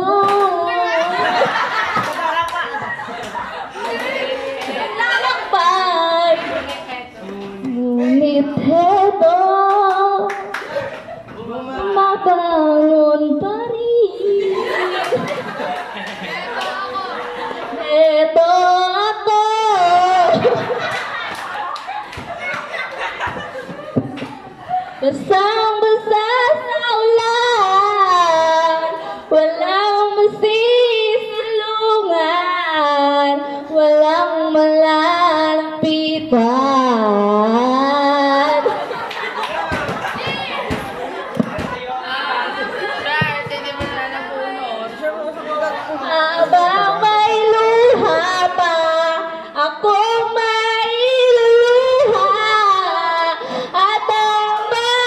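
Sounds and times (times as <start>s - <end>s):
girl singing into microphone: 0.0s - 1.2s, 5.2s - 10.5s, 11.8s - 15.3s, 17.8s - 20.8s, 25.0s - 38.8s, 46.0s - 55.0s.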